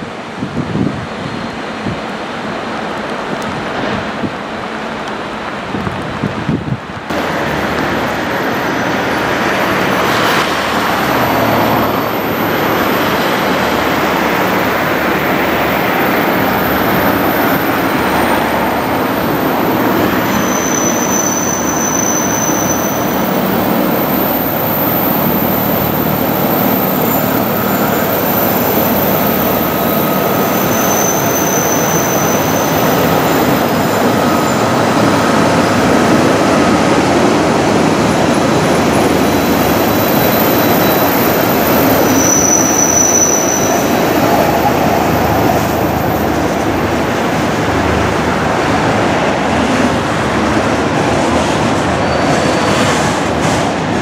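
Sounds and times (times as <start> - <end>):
train wheels rumbling: 0.0 - 54.0
diesel locomotive engines running: 0.1 - 54.0
high wheel squeals: 7.2 - 36.1, 38.7 - 46.9.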